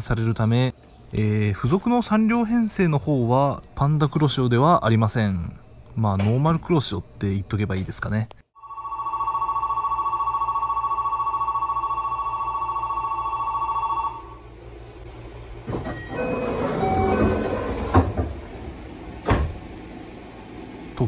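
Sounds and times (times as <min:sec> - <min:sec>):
electric departure bell ringing: 0:08.6 - 0:14.4, 0:15.9 - 0:18.0
train doors hissing and clattering: 0:15.6 - 0:20.1
train door knock: 0:16.9 - 0:18.6, 0:19.2 - 0:19.7.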